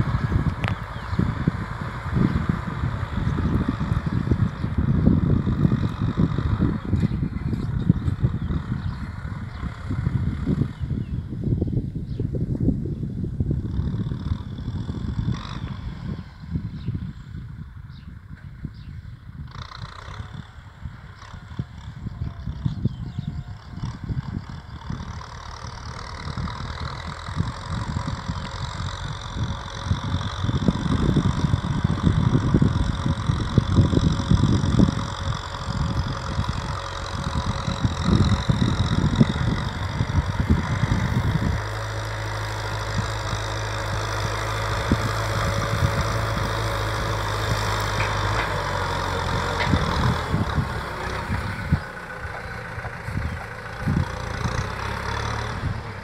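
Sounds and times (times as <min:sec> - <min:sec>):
tractor diesel engine running: 0:00.0 - 0:56.0
wind buffeting microphone: 0:00.0 - 0:56.0.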